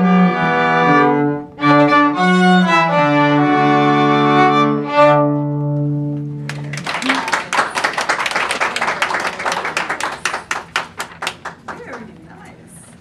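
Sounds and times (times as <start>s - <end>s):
string quartet playing chords: 0.0s - 6.8s
people clapping: 6.4s - 12.8s.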